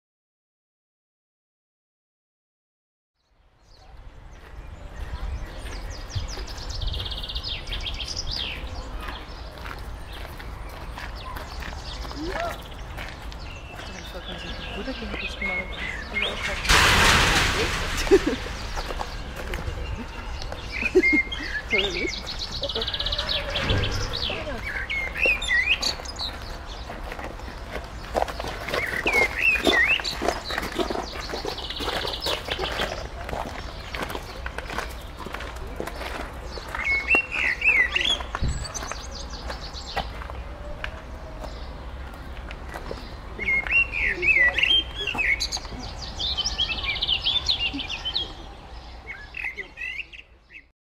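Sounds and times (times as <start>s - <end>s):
songbirds chirping: 3.2s - 50.7s
bird trill: 18.2s - 26.4s.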